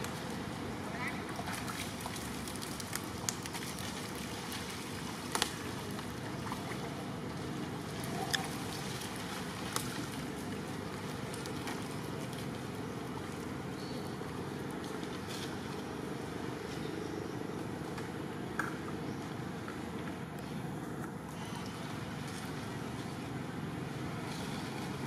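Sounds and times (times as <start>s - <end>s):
stream water running over rocks: 0.0s - 16.7s.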